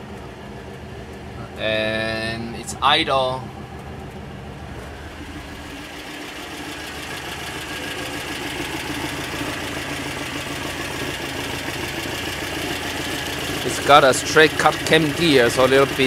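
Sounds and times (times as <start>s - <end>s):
car engine idling: 0.0s - 16.0s
faint gear whine: 0.0s - 16.0s.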